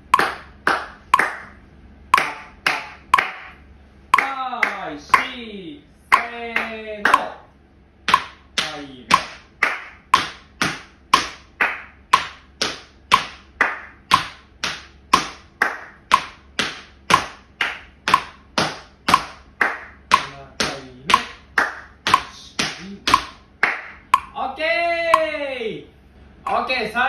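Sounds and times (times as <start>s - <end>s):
metronome pinging: 1.1s - 5.4s, 6.1s - 7.4s, 8.1s - 14.4s, 15.1s - 25.5s
tap shoes on wooden floor: 10.1s - 11.4s, 12.1s - 13.4s, 14.1s - 17.4s, 18.1s - 19.4s, 22.0s - 23.4s.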